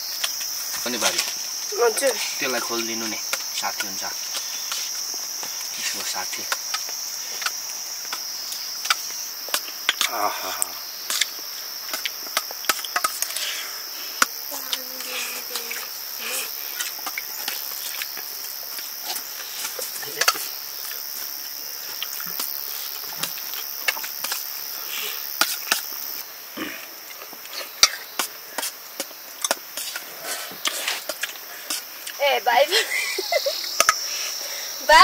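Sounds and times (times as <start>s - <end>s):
insects droning: 0.0s - 35.0s.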